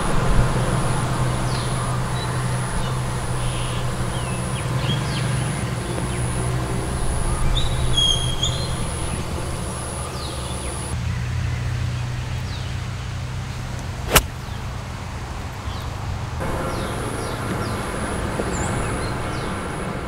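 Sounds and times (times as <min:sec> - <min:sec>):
outdoor ambience: 0:00.0 - 0:20.0
bird chirps: 0:01.4 - 0:11.0
golf club striking ball: 0:14.1 - 0:14.3.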